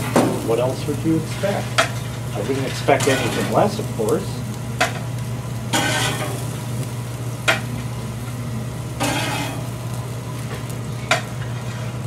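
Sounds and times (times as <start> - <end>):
spatula scraping grill: 0.0 - 8.0, 9.0 - 12.0
burger patties sizzling: 0.0 - 12.0
low hum: 3.9 - 11.5.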